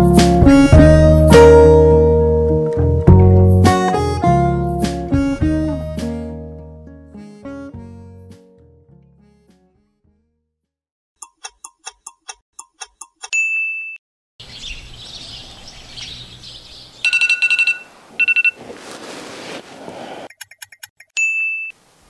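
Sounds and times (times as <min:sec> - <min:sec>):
birds chirping: 0:14.4 - 0:18.8
electronic alarm beeping: 0:17.0 - 0:18.6.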